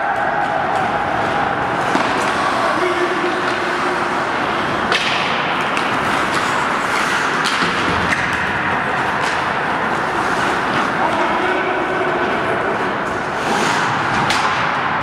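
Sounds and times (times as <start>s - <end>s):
hockey sticks and puck clacking: 0.0s - 15.0s
puck knocking against boards: 1.8s - 2.4s, 4.8s - 9.5s.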